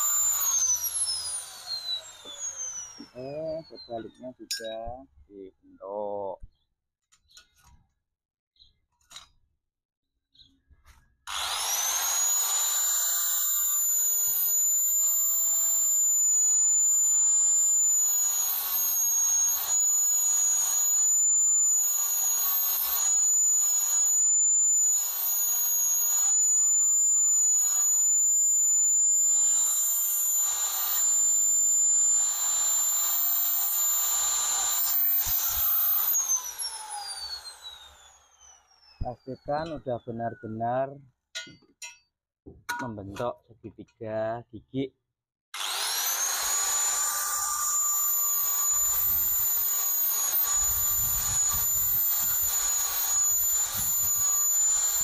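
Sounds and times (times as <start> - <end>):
angle grinder grinding steel: 0.0 - 4.8, 11.3 - 40.2, 45.6 - 55.0.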